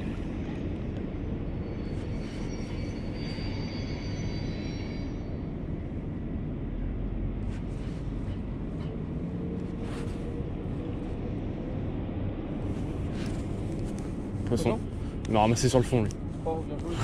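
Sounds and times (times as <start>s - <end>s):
faint high whining tones: 0.0s - 6.3s.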